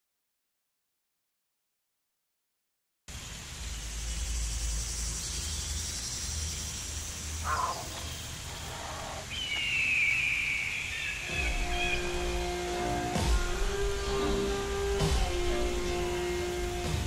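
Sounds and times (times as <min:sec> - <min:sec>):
high hiss: 0:03.1 - 0:17.0
high falling bird call: 0:03.8 - 0:16.9
low rumble: 0:11.3 - 0:17.0.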